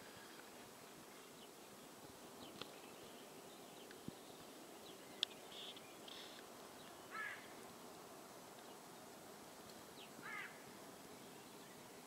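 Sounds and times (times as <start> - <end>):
faint outdoor ambience: 0.0 - 12.0
short bird calls: 7.0 - 7.6, 10.0 - 10.7.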